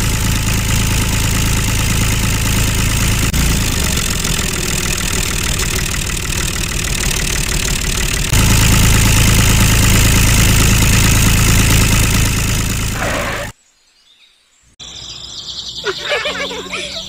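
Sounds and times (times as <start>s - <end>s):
engine idling: 0.0s - 13.5s.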